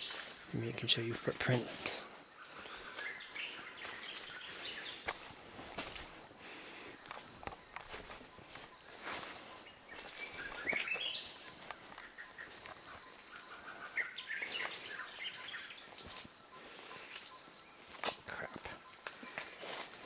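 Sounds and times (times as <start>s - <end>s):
insects droning: 0.0s - 20.0s
bird calls: 2.4s - 5.2s, 7.6s - 17.4s
footsteps on mud: 2.5s - 13.2s.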